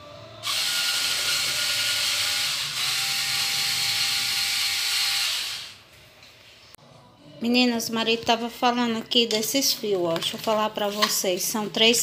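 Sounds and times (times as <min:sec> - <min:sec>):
cordless drill whining: 0:00.4 - 0:05.8.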